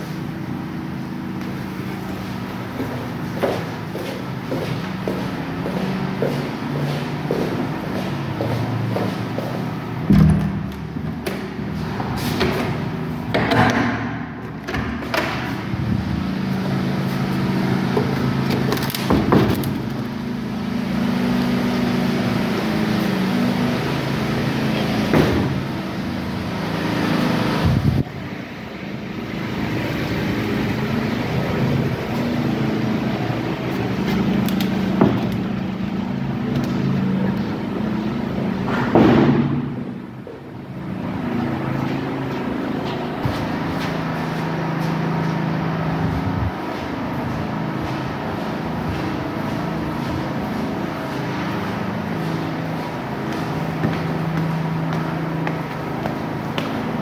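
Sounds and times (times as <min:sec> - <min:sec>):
low mechanical hum: 0:00.0 - 0:57.0
sharp knocks and clicks: 0:13.3 - 0:15.5.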